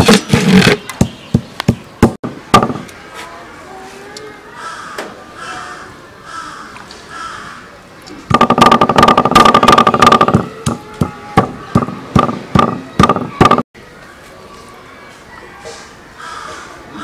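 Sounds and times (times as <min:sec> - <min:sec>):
stone pestle thudding on board: 0:00.0 - 0:02.9, 0:08.3 - 0:13.6
crows cawing: 0:04.6 - 0:07.8, 0:16.2 - 0:17.0.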